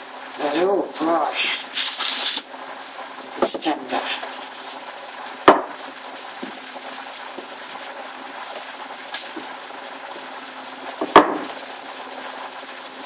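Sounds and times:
rolling pin knocking worktop: 5.5 - 5.8, 11.0 - 11.6.

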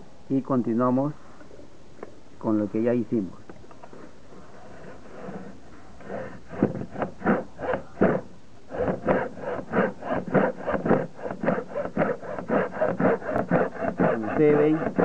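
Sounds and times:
hacksaw sawing through board: 4.6 - 15.0.

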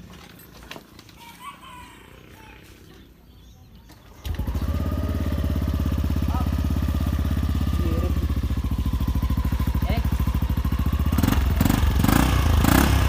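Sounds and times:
scooter engine idling: 4.1 - 13.0.

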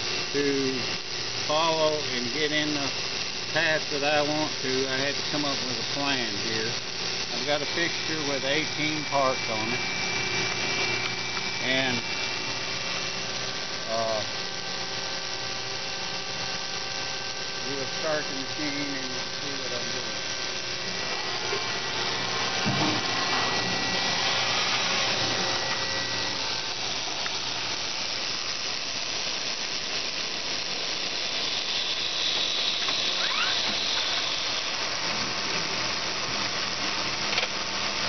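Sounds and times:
machine whirring and hissing: 0.0 - 38.0
short rising whine: 7.2 - 36.6.

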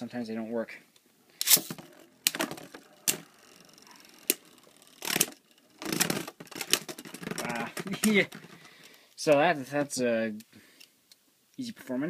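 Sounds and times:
spinning tops whirring: 1.4 - 7.7
spinning tops clacking and rattling: 1.5 - 8.2.

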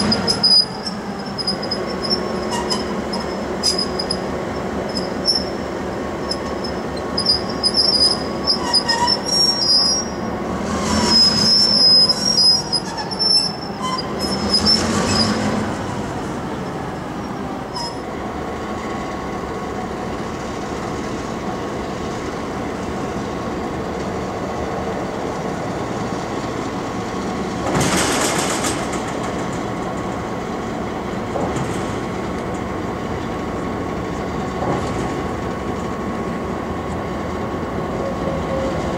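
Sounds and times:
train wheels screeching on rail: 0.0 - 18.2, 24.0 - 38.9.

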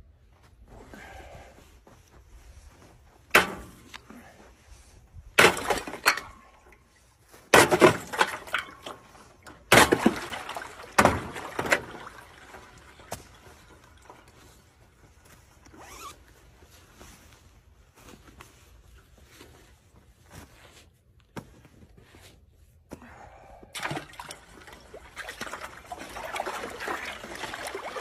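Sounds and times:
water splashing: 9.7 - 14.5, 23.8 - 28.0.

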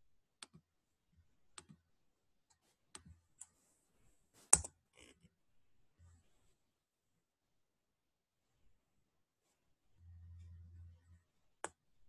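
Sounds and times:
computer mouse clicks: 1.6 - 1.8.

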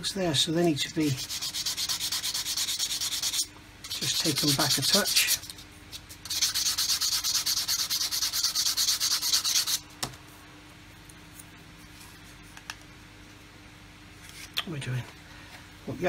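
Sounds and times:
hand sanding plastic: 1.1 - 9.8.

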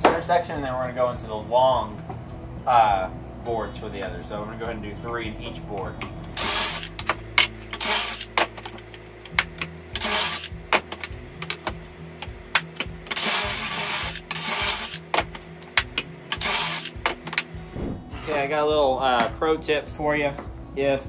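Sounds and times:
cordless drill whining: 13.1 - 15.1, 16.3 - 17.0.

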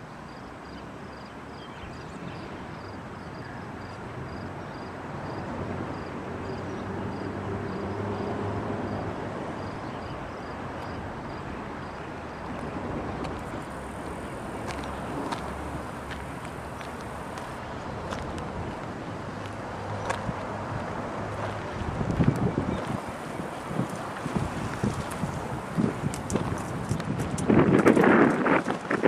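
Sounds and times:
diesel locomotive engine rumbling: 12.8 - 17.6.

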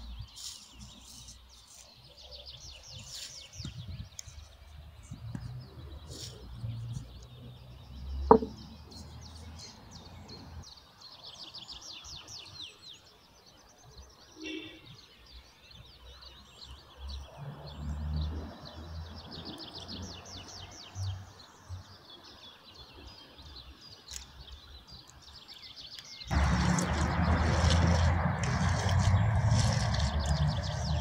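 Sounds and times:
birds chirping: 0.0 - 17.3, 19.2 - 31.0
hand squishing minced meat: 26.3 - 31.0.

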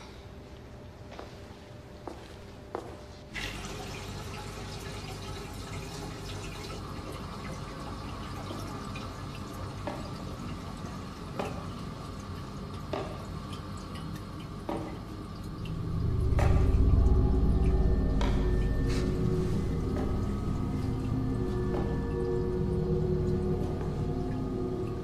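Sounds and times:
water running into a sink: 3.4 - 17.4
water drips: 3.4 - 25.0.

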